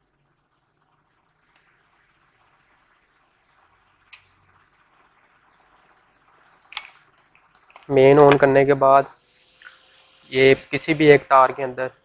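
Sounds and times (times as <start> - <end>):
high-pitched electronic whine: 7.9 - 12.0.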